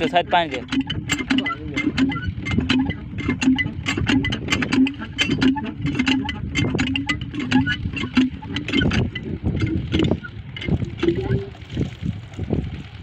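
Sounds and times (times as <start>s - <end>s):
pump squeaking: 0.0s - 12.8s
well pump clattering: 0.0s - 13.0s.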